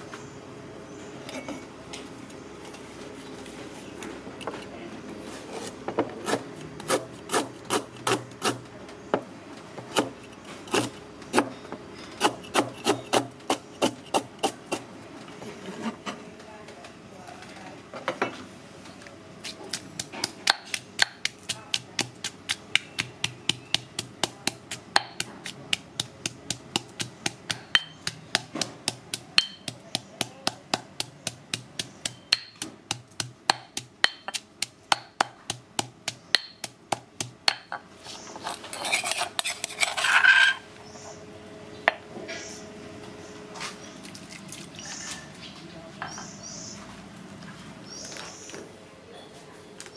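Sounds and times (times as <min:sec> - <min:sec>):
stone pestle pounding in mortar: 0:19.7 - 0:37.8
metal spoon scraping stone bowl: 0:38.4 - 0:40.7.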